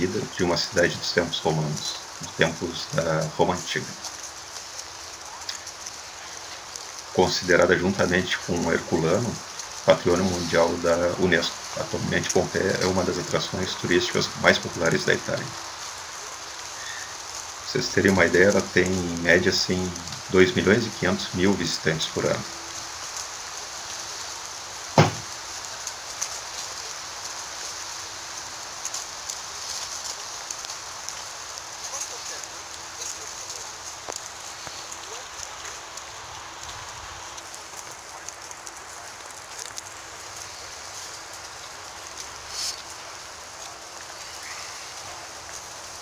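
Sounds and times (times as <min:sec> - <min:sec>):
steady rain falling: 0:00.0 - 0:46.0
sharp thump: 0:25.0 - 0:25.3.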